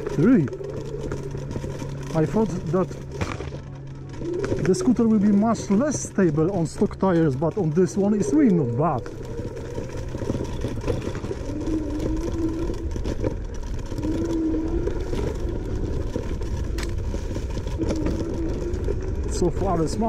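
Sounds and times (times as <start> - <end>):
electric scooter motor whining: 0.0 - 20.0
scooter knocking over rough ground: 0.0 - 20.0
wind and ride rumble: 0.0 - 20.0.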